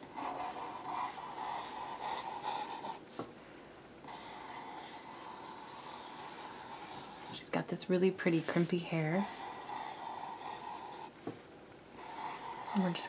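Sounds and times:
marker scratching on paper: 0.2s - 3.1s, 4.1s - 7.4s, 8.3s - 11.1s, 12.0s - 13.0s.

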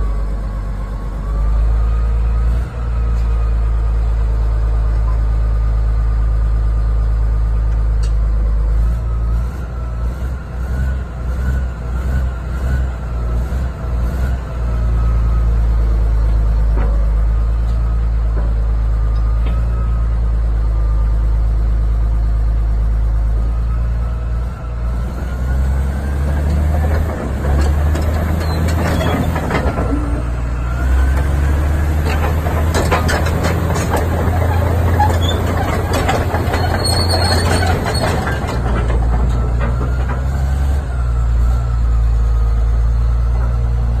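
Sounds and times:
bulldozer diesel engine idling: 0.0s - 10.0s, 14.5s - 25.0s, 25.8s - 44.0s
metallic clanks and knocks: 26.4s - 30.3s, 31.1s - 40.5s.

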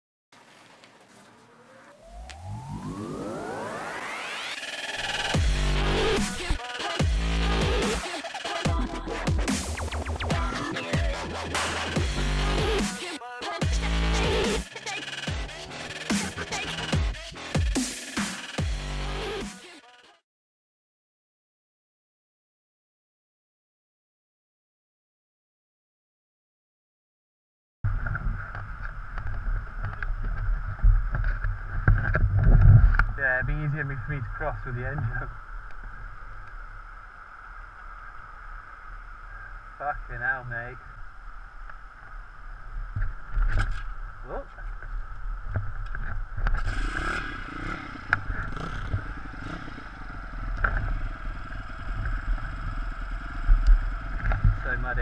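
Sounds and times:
motorbike engine rumbling: 42.8s - 55.0s.

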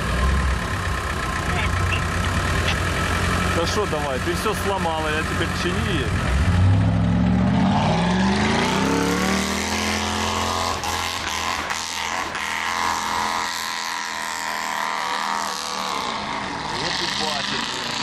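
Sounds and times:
engine revving hard: 5.2s - 18.0s.

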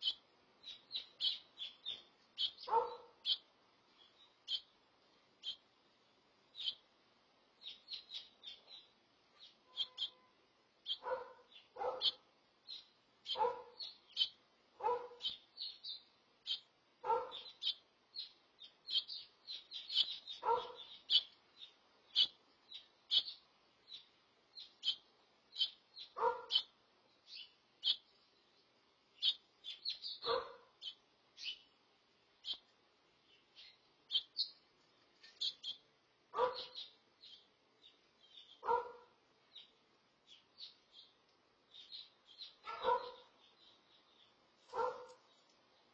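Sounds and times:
louder lower bird calls: 0.0s - 3.5s, 7.6s - 28.0s
finch chirping: 0.0s - 4.8s, 5.4s - 5.6s, 6.5s - 6.8s, 7.6s - 28.3s, 29.2s - 31.7s, 32.4s - 34.6s, 35.2s - 45.9s.

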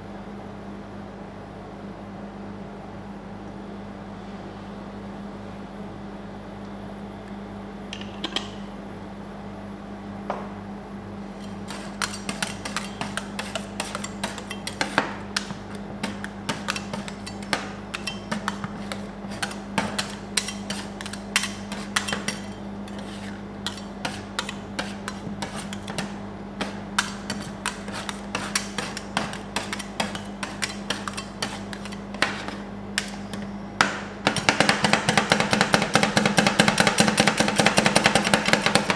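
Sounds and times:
machine low hum: 0.0s - 38.9s
spatulas tapping and scraping metal: 11.4s - 33.5s, 34.3s - 38.9s.

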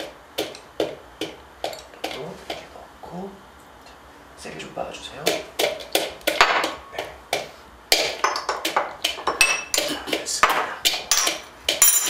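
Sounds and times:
wooden pestle pounding in bowl: 0.0s - 2.7s, 5.2s - 11.8s
tableware clinking: 8.0s - 12.0s.

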